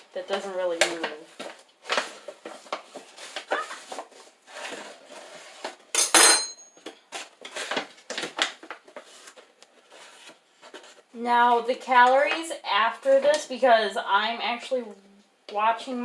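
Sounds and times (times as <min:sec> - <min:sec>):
ringing metallic clink: 0:06.0 - 0:06.8.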